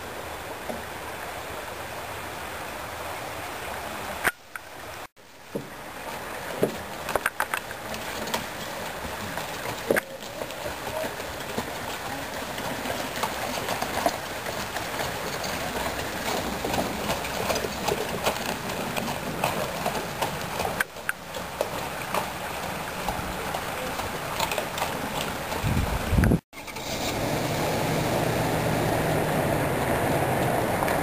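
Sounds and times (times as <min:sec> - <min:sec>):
horse hooves on gravel: 0:05.6 - 0:26.4.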